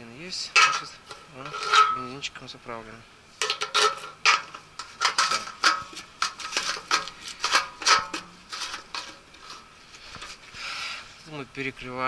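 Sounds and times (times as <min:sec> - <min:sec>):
fuel cap clicking and scraping: 0:03.4 - 0:10.4.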